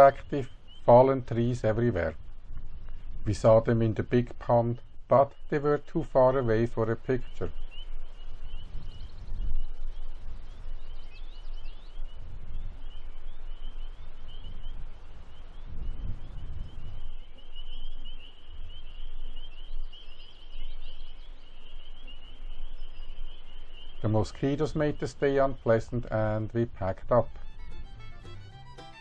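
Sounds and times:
chorus of high peeping calls: 0:00.0 - 0:02.2, 0:03.1 - 0:29.0
wind rumble on microphone: 0:00.0 - 0:28.3.

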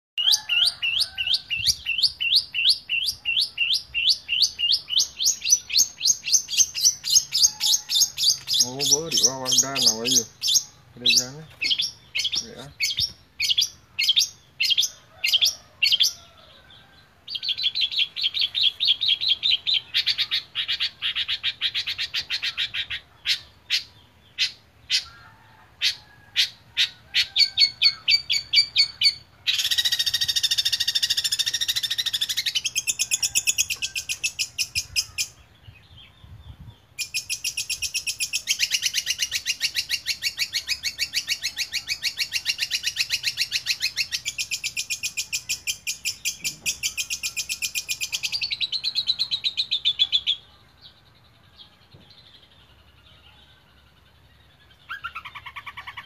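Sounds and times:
bird singing chirps and rattles: 0:00.2 - 0:16.3, 0:36.6 - 0:50.4.

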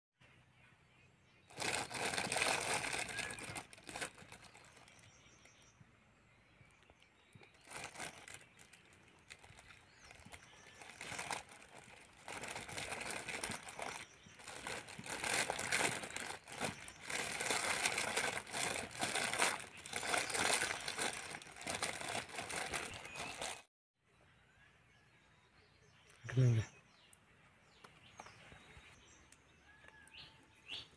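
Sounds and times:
plastic bag crinkling: 0:01.5 - 0:05.5, 0:07.3 - 0:23.7.

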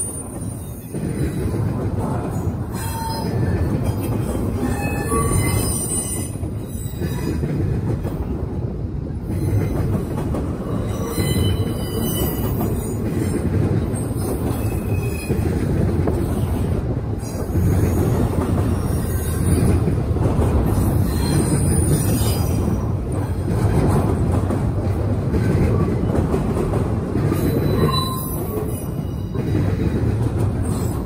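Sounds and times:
freight train rumbling: 0:00.0 - 0:31.0
high-pitched wheel squeal: 0:02.7 - 0:03.4, 0:04.6 - 0:07.3, 0:10.8 - 0:13.0, 0:27.4 - 0:29.3.

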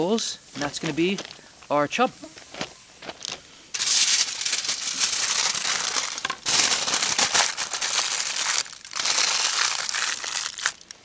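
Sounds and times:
aluminium foil crinkling: 0:02.3 - 0:11.0.

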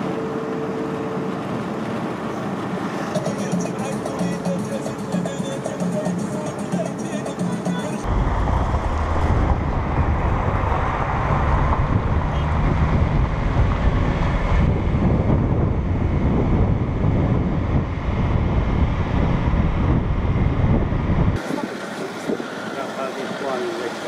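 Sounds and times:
vehicle road noise: 0:00.0 - 0:24.0
wind buffeting microphone: 0:08.0 - 0:22.6.

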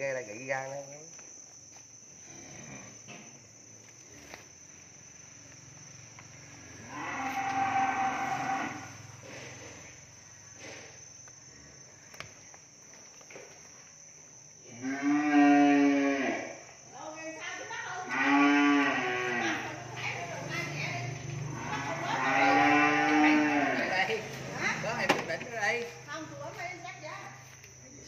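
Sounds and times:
cow mooing: 0:06.8 - 0:08.9, 0:14.7 - 0:16.5, 0:18.1 - 0:19.7, 0:21.5 - 0:24.0.

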